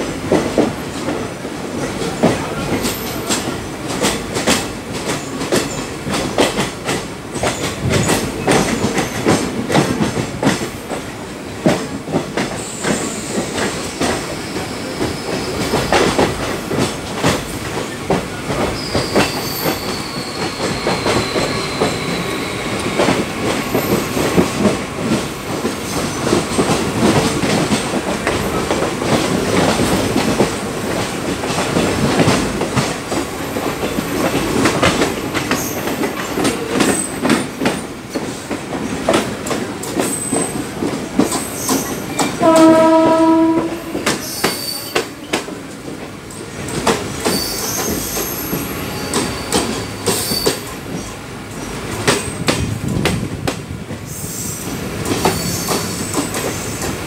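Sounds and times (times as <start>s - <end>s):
train wheels clattering over rails: 0.0s - 57.0s
high wheel squeals: 18.7s - 23.0s, 47.3s - 50.7s.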